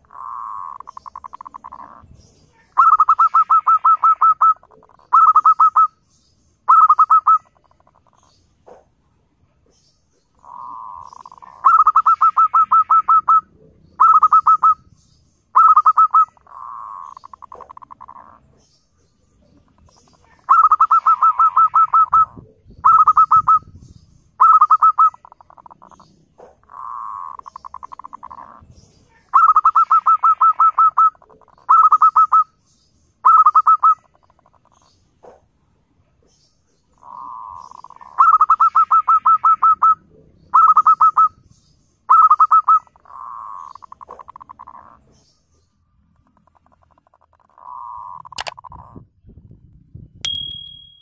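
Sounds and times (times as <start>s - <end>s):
dove cooing: 0.0s - 2.1s, 2.8s - 5.9s, 10.4s - 14.8s, 15.6s - 18.4s, 19.9s - 23.8s, 24.4s - 28.6s, 29.3s - 32.4s, 37.0s - 41.4s, 42.1s - 45.0s.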